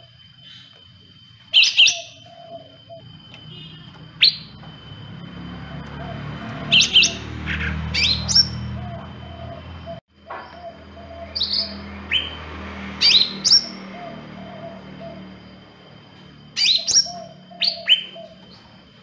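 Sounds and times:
bird chirping high and sharp: 0:01.6 - 0:02.3, 0:06.6 - 0:08.8.

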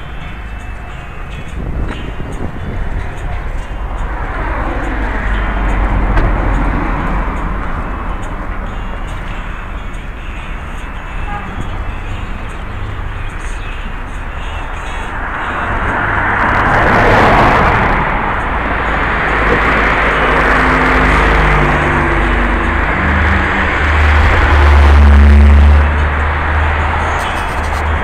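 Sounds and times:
cars driving past: 0:00.0 - 0:28.0
deep rumble: 0:21.9 - 0:28.0.

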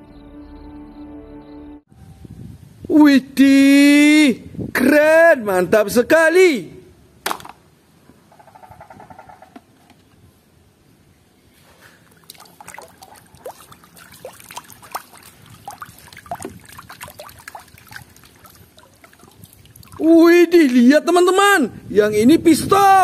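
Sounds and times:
plastic toys knocking together: 0:07.2 - 0:07.6
water sloshing and splashing: 0:11.9 - 0:20.2.

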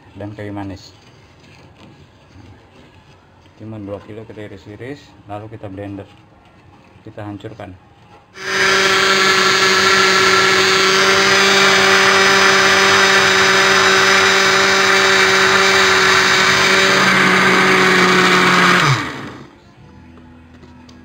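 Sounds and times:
blender running: 0:08.4 - 0:19.5.

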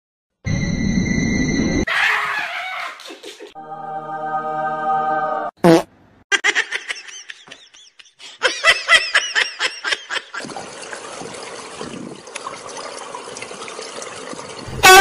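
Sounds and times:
person laughing: 0:06.3 - 0:10.5
water at swimming pool: 0:09.4 - 0:15.0.

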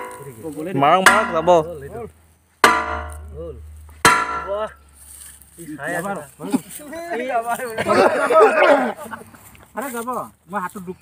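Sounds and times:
hammer striking steel pipe: 0:00.0 - 0:04.8.

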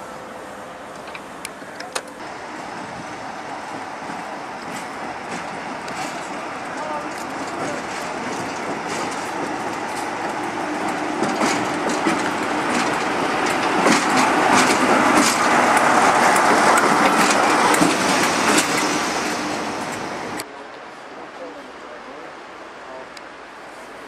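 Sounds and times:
locomotive low hum: 0:00.0 - 0:20.5
wheels clacking over rail joints: 0:00.9 - 0:20.5.

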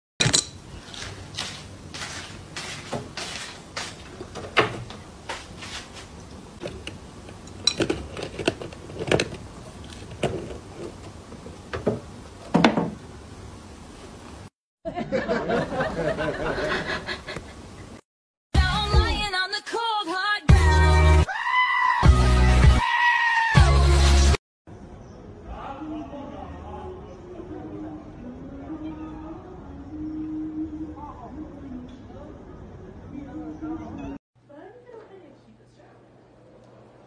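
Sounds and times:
metal wrench clinking: 0:00.2 - 0:00.6, 0:07.4 - 0:09.2.

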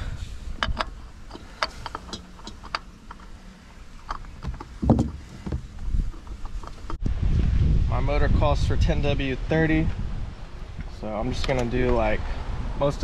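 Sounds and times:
oil filter clicks and taps: 0:00.6 - 0:03.3.

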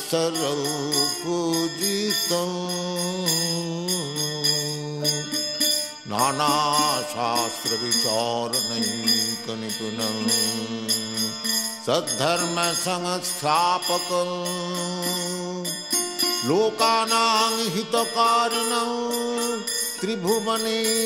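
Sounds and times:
person chanting a hymn: 0:00.0 - 0:05.4, 0:06.1 - 0:15.8
small hand cymbals jingling: 0:00.0 - 0:21.0.

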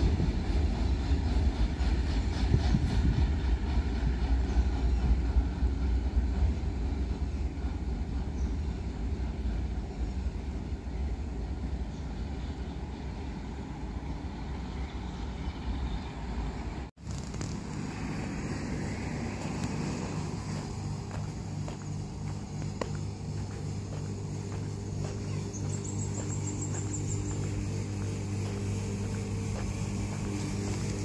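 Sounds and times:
train rumbling: 0:00.0 - 0:31.0.

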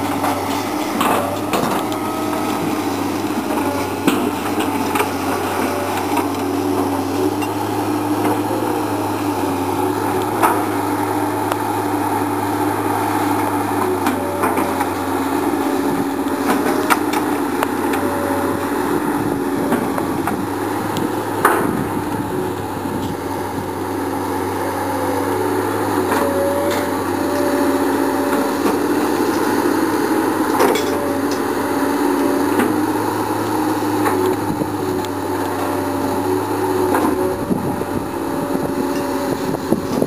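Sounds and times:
excavator engine and hydraulic hum: 0:00.0 - 0:40.0.

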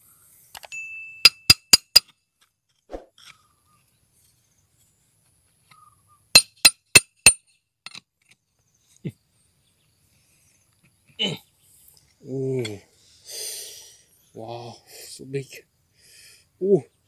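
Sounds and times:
bright ringing clinks: 0:00.7 - 0:01.8.

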